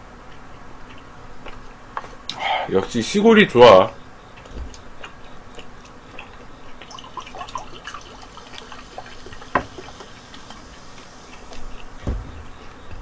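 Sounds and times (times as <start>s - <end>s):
cola pouring into a mug: 6.8s - 10.1s.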